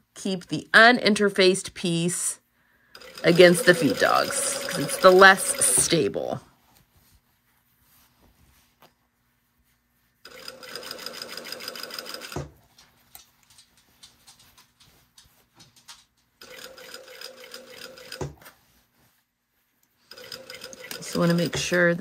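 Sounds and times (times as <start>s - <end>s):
sewing machine stopping knock: 3.0s - 6.0s
sewing machine running: 3.0s - 6.4s, 10.3s - 12.4s, 16.4s - 18.2s, 20.1s - 21.8s.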